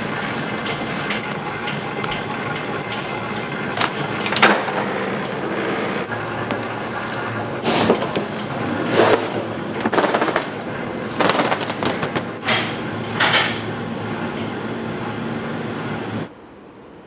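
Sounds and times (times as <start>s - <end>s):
machinery humming: 0.0s - 17.0s.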